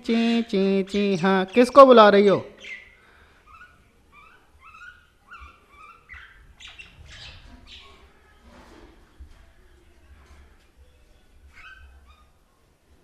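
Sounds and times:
bird squawking: 2.6s - 7.9s.

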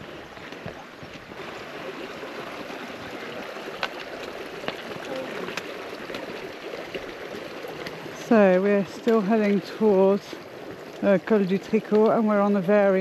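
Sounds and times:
footsteps on a trail: 0.0s - 9.6s
running water: 0.0s - 13.0s.

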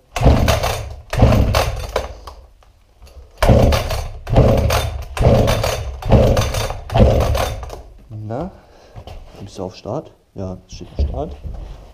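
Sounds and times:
chainsaw being pull-started: 0.1s - 2.4s, 3.4s - 7.9s
recoil starter pulls: 0.1s - 2.4s, 3.1s - 7.9s.

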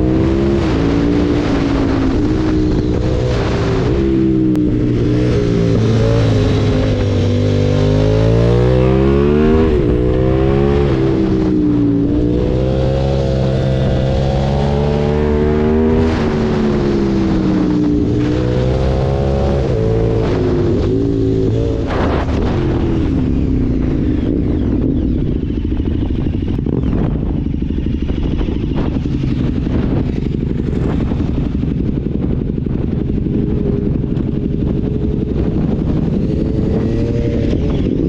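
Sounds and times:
motorcycle engine accelerating: 0.0s - 38.0s
wind and road noise: 0.0s - 38.0s.

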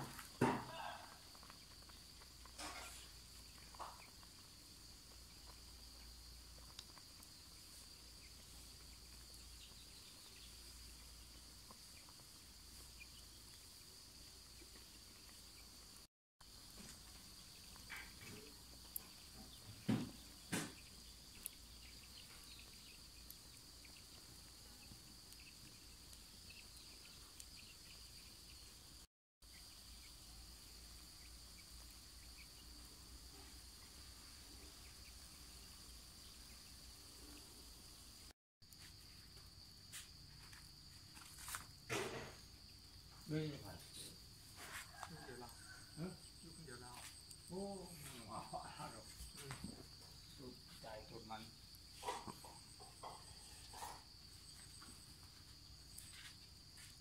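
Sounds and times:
insects chirring: 0.0s - 57.0s.

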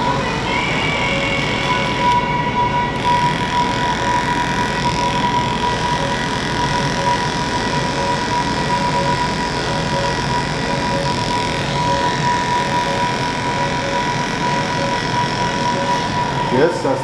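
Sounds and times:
electric hair clipper humming: 0.0s - 17.0s.

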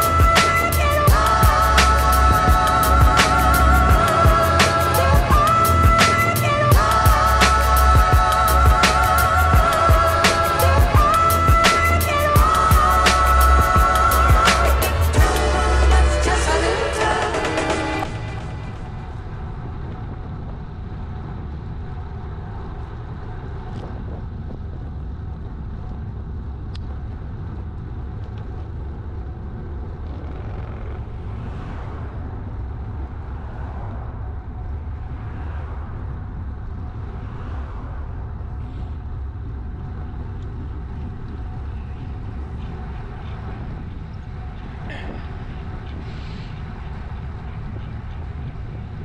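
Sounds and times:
wind rumble on microphone: 0.0s - 49.0s
bicycle tyre hiss on asphalt: 46.0s - 46.6s.

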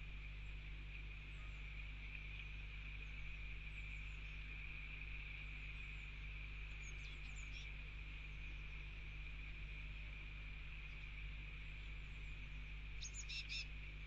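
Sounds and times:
low hum: 0.0s - 14.0s
bird chirps: 13.0s - 13.7s.

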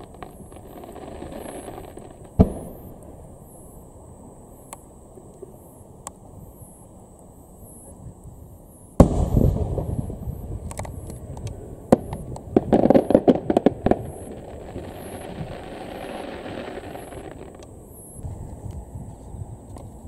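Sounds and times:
rapid firework crackling: 0.0s - 2.9s, 12.0s - 17.8s
firework booms with rumbling echo: 0.0s - 3.4s, 9.0s - 17.6s.

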